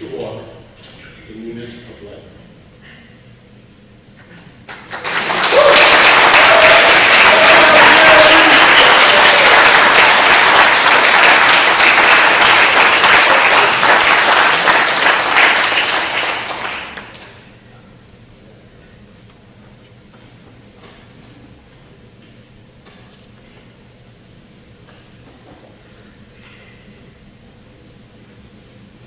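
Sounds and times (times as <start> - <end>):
congregation applauding: 4.7 - 17.4
person cheering: 5.4 - 10.4.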